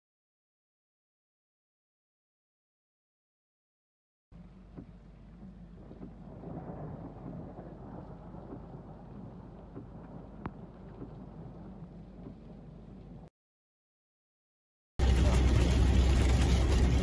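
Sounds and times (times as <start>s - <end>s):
thunder rumbling: 4.4s - 13.3s, 15.0s - 17.0s.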